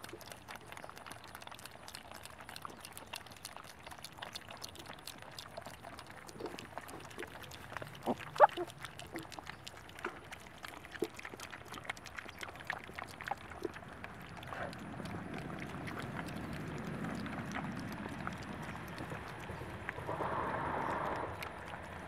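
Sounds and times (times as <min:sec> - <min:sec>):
piglets chewing and crunching: 0:00.0 - 0:22.0
piglets snuffling: 0:00.0 - 0:22.0
piglets grunting: 0:06.4 - 0:09.4.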